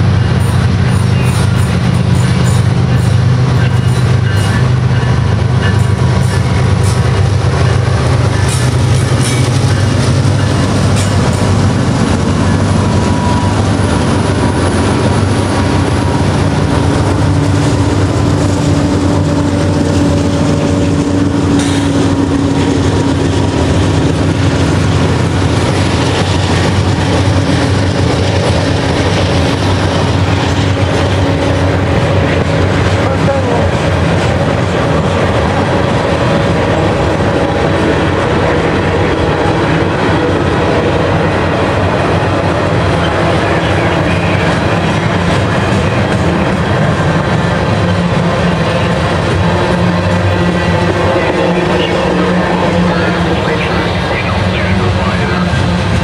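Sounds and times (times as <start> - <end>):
diesel locomotives rumbling: 0.0 - 56.0
freight cars rolling by: 0.0 - 56.0
train wheels clacking on rail joints: 0.0 - 56.0.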